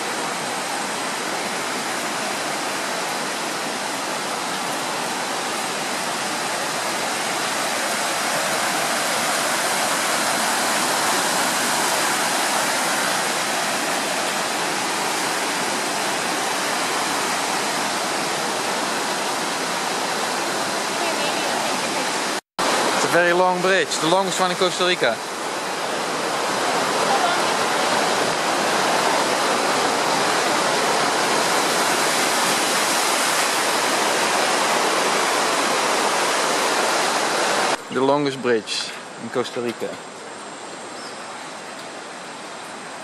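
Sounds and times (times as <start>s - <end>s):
river rapids rushing: 0.0s - 43.0s.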